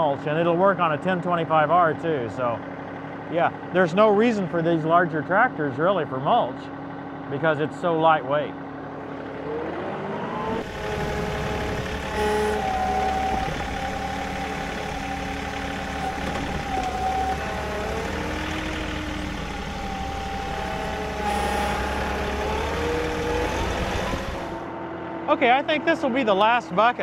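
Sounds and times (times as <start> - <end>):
tractor diesel engine under load: 0.0 - 4.4, 6.7 - 24.9
whine sliding in pitch: 9.3 - 24.8.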